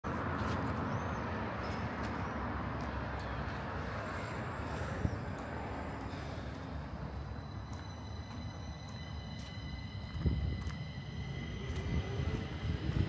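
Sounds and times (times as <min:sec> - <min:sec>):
distant traffic hum: 0:00.0 - 0:13.0.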